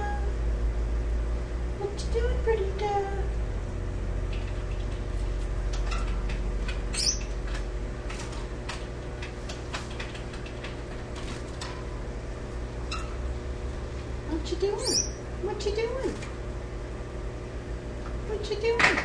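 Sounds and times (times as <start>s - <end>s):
steady low hum: 0.0s - 19.0s
finches chirping and clicking: 6.9s - 7.4s, 14.6s - 15.2s.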